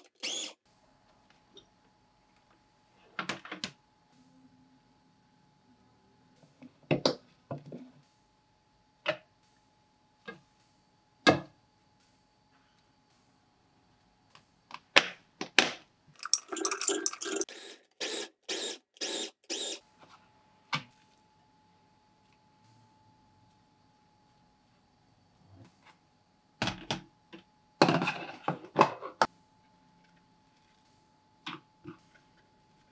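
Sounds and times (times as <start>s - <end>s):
spoon scraping containers: 16.2s - 17.8s.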